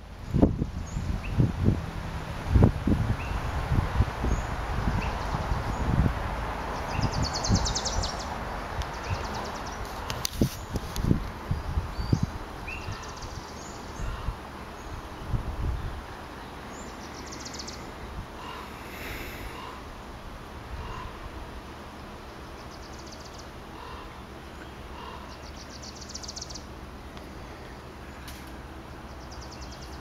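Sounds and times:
steady background hiss: 0.0 - 30.0.

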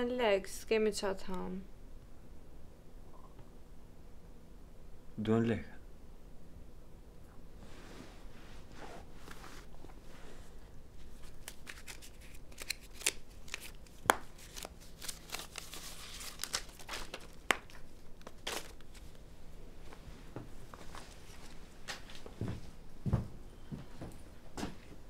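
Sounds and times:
paper rustling and crinkling: 11.0 - 19.2.

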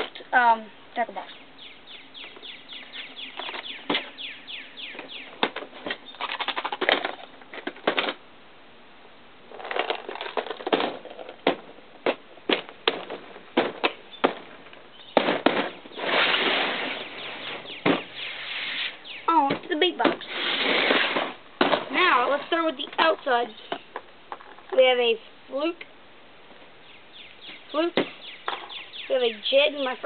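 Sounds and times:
plastic tackle boxes clattering: 9.5 - 17.0
plastic box scraping across table: 15.9 - 17.6, 20.2 - 21.4.

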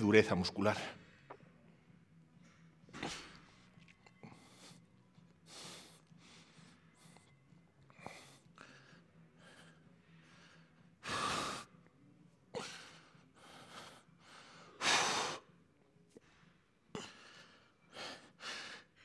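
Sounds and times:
man breathing hard: 5.4 - 11.8, 12.6 - 15.5, 16.2 - 19.0.

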